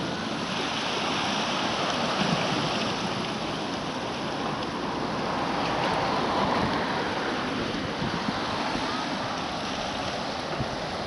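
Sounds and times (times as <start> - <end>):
waves washing on rocky shore: 0.0 - 11.0
wind on microphone: 6.0 - 11.0.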